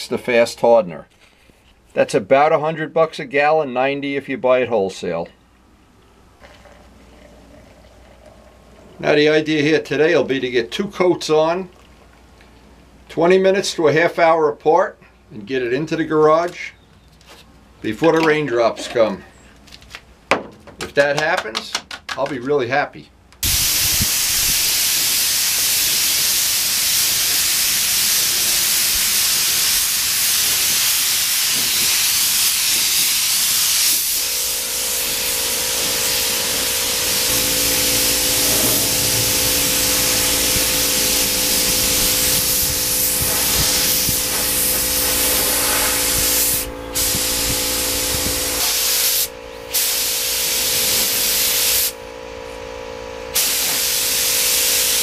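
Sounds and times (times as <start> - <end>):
spray gun hissing: 23.4 - 52.0, 53.4 - 55.0
steady low hum: 34.0 - 53.4.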